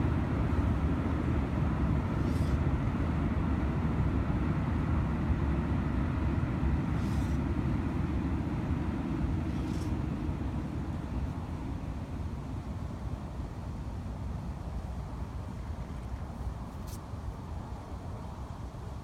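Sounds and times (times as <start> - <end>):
faint short hisses: 2.2 - 2.6, 16.7 - 17.1.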